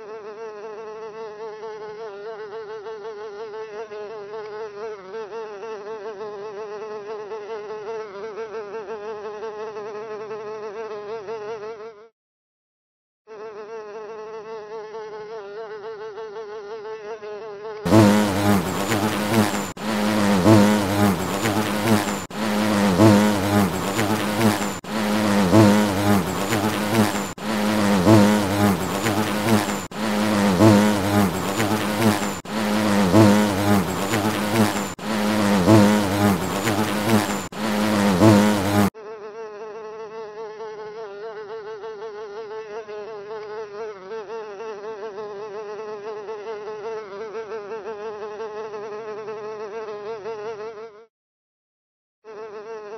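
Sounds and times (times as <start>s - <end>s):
loud low bee buzz: 0.0s - 12.1s, 13.3s - 51.1s
higher wavering insect buzz: 17.9s - 38.9s.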